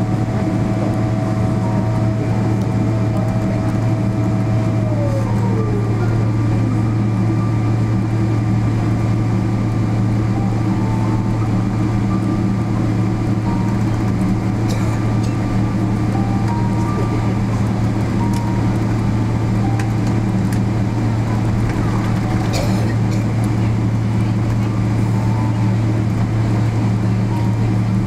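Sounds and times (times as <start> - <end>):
whine sliding down in pitch: 0.0 - 8.1
aircraft cabin engine hum: 0.0 - 28.0.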